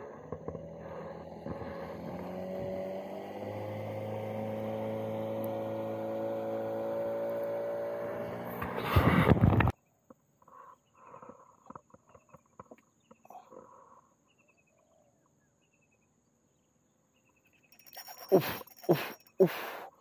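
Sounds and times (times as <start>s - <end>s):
outboard motor running: 0.0s - 9.7s.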